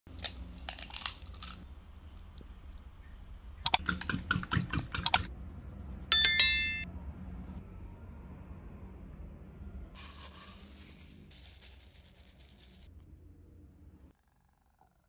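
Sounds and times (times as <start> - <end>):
whisk clicking on ceramic bowl: 3.7 - 5.3
bell-like chime: 6.1 - 6.8.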